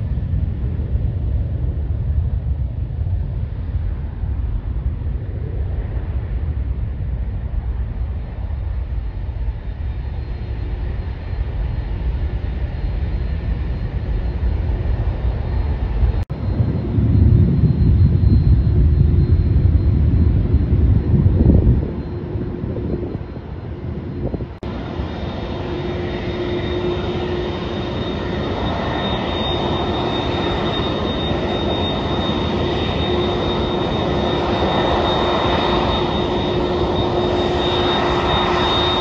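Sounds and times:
jet engines rumbling at takeoff: 0.0s - 39.0s
faint high whine: 7.8s - 39.0s.

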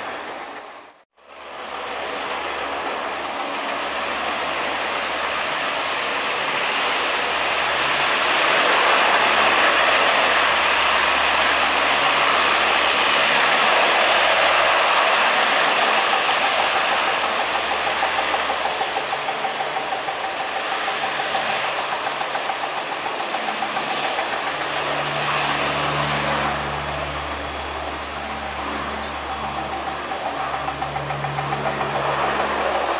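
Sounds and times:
turboprop engines running: 0.0s - 32.9s.

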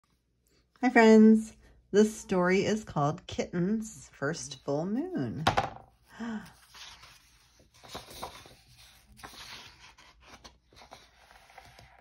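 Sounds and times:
book pages turning: 6.0s - 12.0s.

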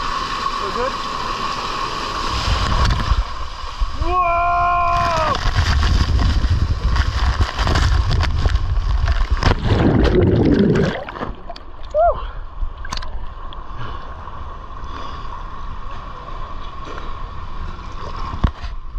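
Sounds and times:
water rushing and spraying: 0.0s - 12.2s
pool water sloshing and bubbling: 5.4s - 12.0s, 15.9s - 18.9s.

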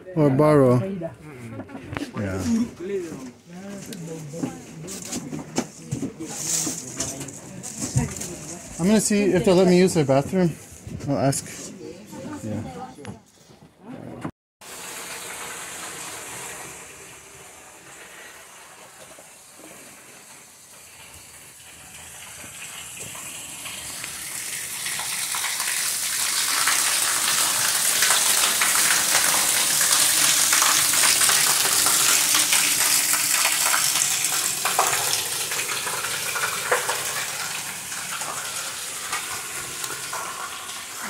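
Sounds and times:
heavy rain on concrete: 14.6s - 41.0s.

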